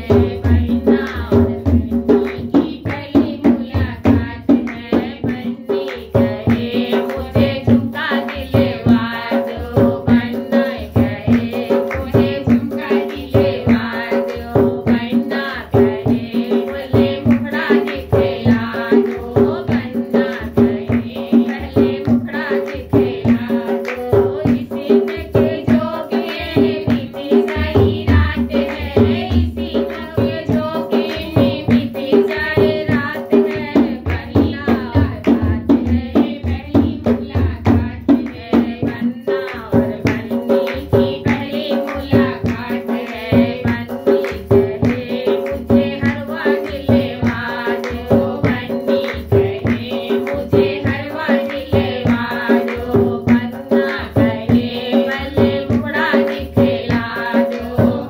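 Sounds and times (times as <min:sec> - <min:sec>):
drum beat: 0:00.0 - 0:58.0
women singing folk song: 0:00.0 - 0:58.0
hand-clapping: 0:02.2 - 0:03.1, 0:04.6 - 0:07.3, 0:16.7 - 0:25.6, 0:26.2 - 0:28.9, 0:38.2 - 0:54.2, 0:54.8 - 0:58.0.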